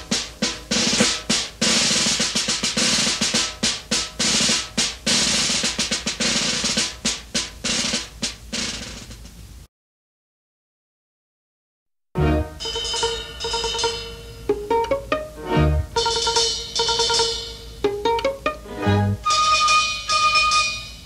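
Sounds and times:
band playing: 0.0s - 8.7s, 12.2s - 21.0s
rapid drumming with snare rolls: 0.0s - 9.6s, 15.9s - 18.6s.

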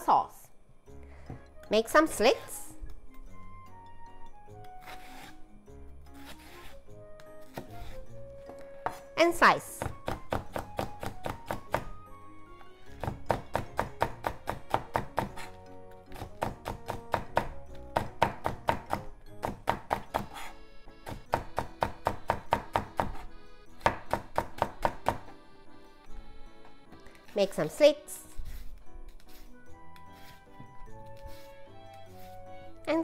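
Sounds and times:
background music: 0.0s - 33.0s
knife chopping on wooden board: 8.8s - 9.1s, 9.8s - 12.0s, 13.0s - 25.4s.

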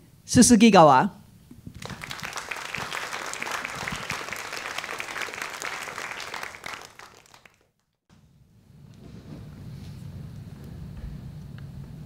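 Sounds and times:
audience applauding: 1.7s - 7.7s.

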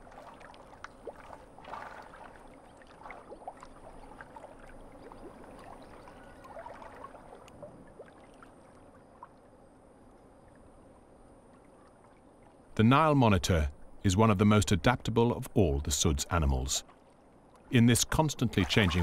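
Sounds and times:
water sloshing and gurgling: 0.0s - 19.0s
small pops and drips: 0.1s - 2.4s, 6.5s - 8.5s.

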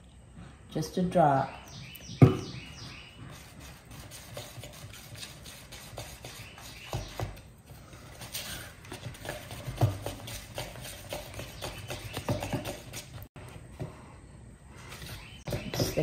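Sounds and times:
stick scraping plastic cup: 3.5s - 13.2s.

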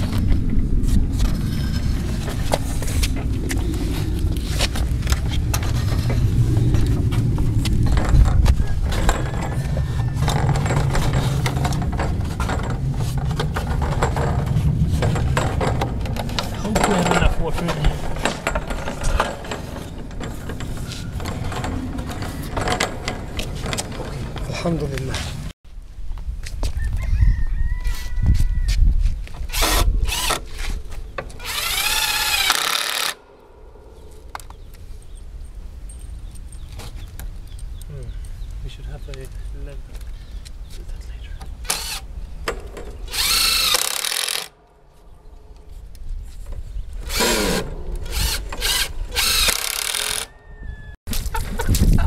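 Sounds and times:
clattering: 5.0s - 24.9s
rooster crowing: 8.5s - 10.6s, 26.7s - 28.8s, 50.0s - 51.0s
cordless drill running: 31.4s - 33.2s, 43.1s - 44.5s, 47.1s - 50.3s.

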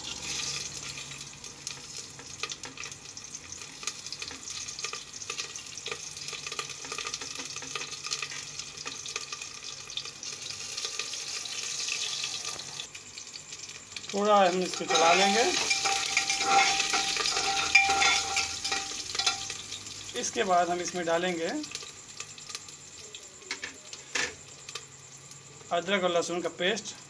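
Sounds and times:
hot oil sizzling: 0.0s - 27.0s.

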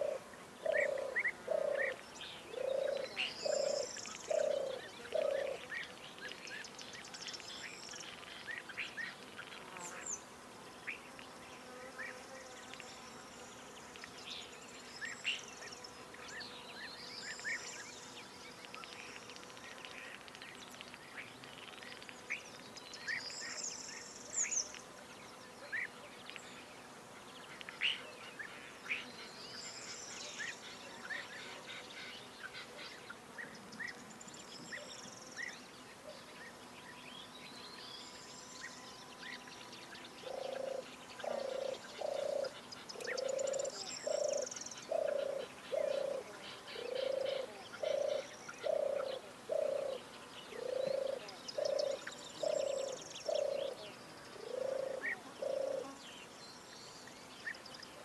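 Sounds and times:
faint steady hiss: 0.0s - 58.0s
small birds chirping and whistling: 2.6s - 9.2s, 37.0s - 46.2s, 46.8s - 53.8s.

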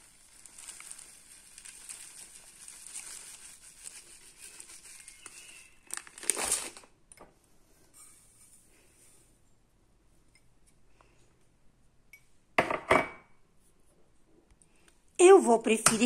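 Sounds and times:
bran pouring into glass: 0.0s - 3.7s
plastic packet crinkling: 0.0s - 7.0s.

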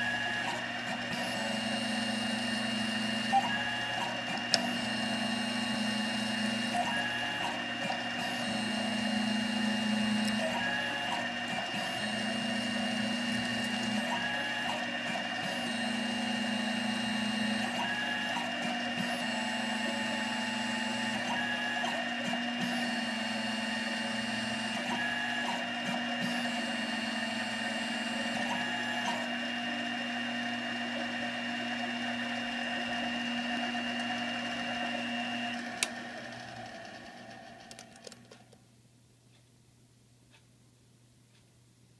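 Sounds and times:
lathe carriage threading passes: 0.0s - 38.0s
lathe spindle whining: 0.0s - 38.4s.

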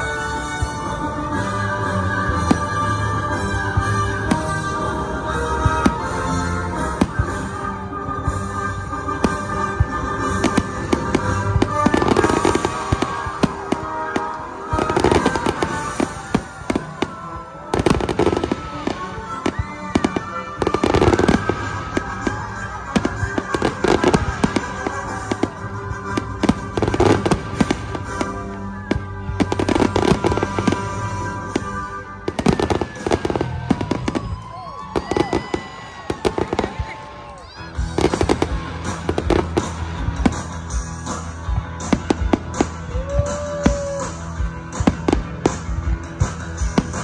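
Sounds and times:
music playing: 0.0s - 47.0s
firework bangs: 9.1s - 37.1s.

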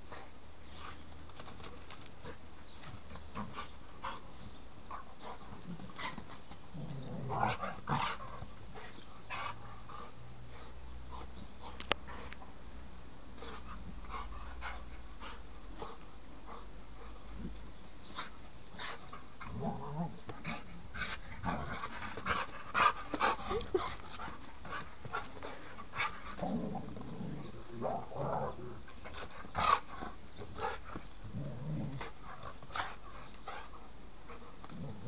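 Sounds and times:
dog growling: 6.7s - 8.2s, 26.4s - 28.9s, 31.2s - 32.2s
rope toy and paws rustling: 13.4s - 31.3s.

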